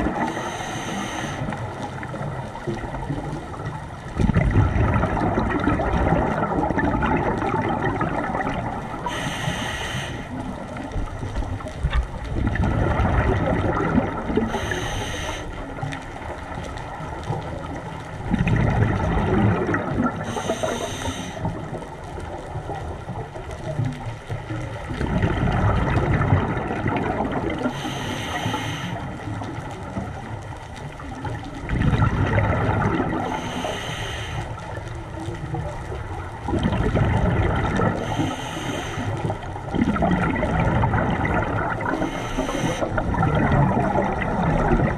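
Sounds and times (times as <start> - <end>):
exhaled bubbles rushing: 0.0 - 0.6, 1.4 - 9.2, 10.3 - 14.9, 15.6 - 33.7, 34.6 - 44.9
hissing regulator inhalations: 0.2 - 1.6, 9.0 - 10.5, 14.4 - 15.6, 20.2 - 21.5, 27.7 - 29.2, 33.2 - 34.6, 38.0 - 39.4, 41.9 - 42.9.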